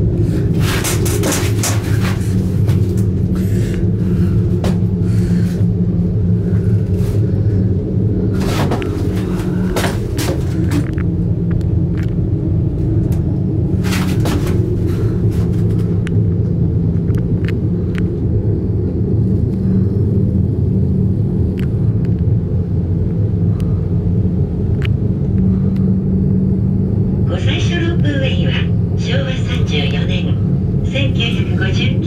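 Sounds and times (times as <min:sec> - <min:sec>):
cable car cabin rumble: 0:00.0 - 0:32.0
sharp clicks and rattles: 0:00.6 - 0:03.2.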